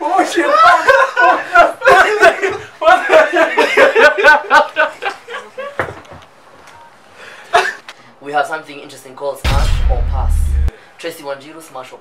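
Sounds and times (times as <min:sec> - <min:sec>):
men laughing hard: 0:00.4 - 0:05.8.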